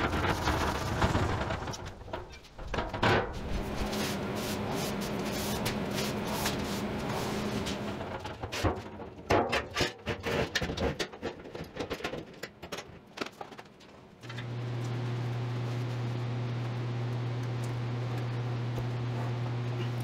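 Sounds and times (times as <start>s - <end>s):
shop machine humming: 3.3s - 8.1s, 14.3s - 20.0s.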